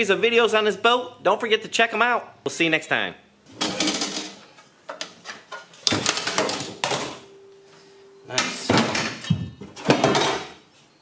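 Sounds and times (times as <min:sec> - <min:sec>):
metal clattering and scraping: 0:03.5 - 0:04.6.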